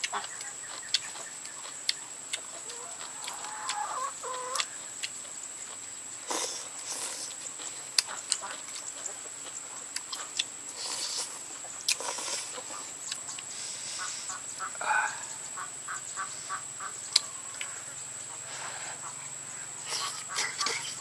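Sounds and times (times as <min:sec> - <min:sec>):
biting and chewing: 0:00.0 - 0:13.5.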